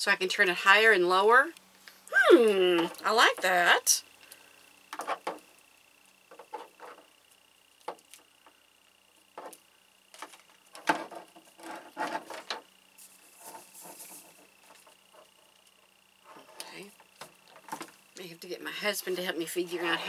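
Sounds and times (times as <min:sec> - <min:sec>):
scraping rustle: 0:10.2 - 0:15.4.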